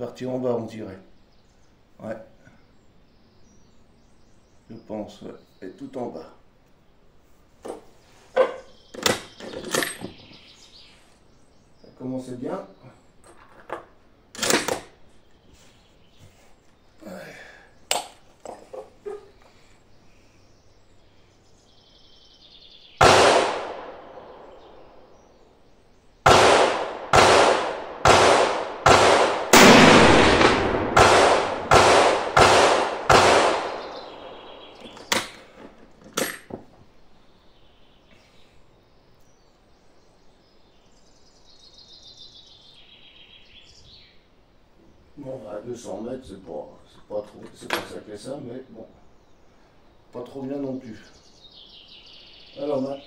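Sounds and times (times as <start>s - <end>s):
rifle shots echoing: 23.0s - 24.9s, 26.2s - 34.4s.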